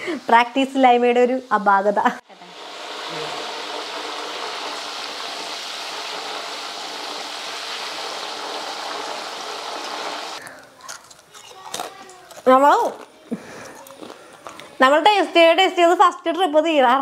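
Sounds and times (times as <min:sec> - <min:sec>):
food deep-frying in oil: 0:00.0 - 0:10.4.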